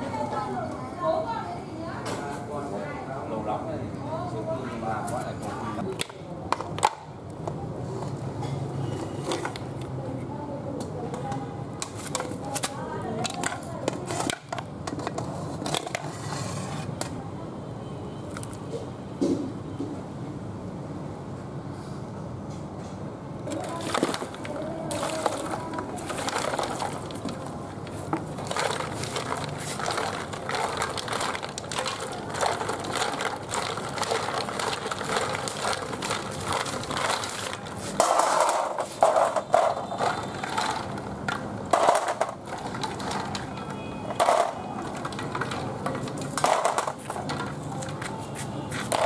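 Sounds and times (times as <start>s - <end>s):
snail shells clattering in metal basin: 23.5s - 48.0s.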